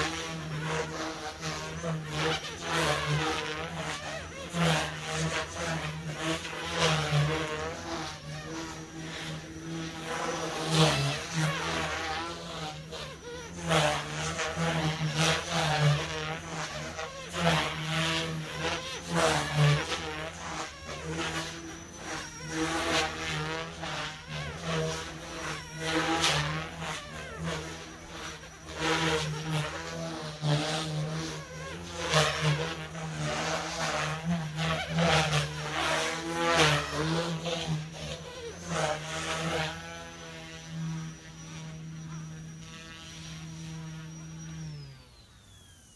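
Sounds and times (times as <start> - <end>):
electric motor hum and whine: 0.0 - 45.9
rotor blades rushing: 0.0 - 45.9.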